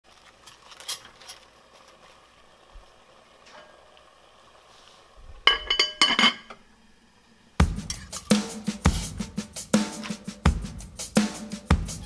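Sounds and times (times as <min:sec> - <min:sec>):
cabbage leaves rustling: 0:00.1 - 0:03.2.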